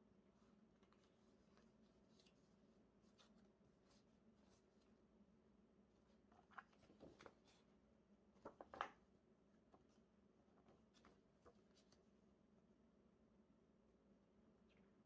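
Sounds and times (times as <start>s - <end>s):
rustling of paper pages: 0.7s - 5.0s, 6.1s - 7.7s, 8.4s - 9.0s, 10.6s - 12.1s.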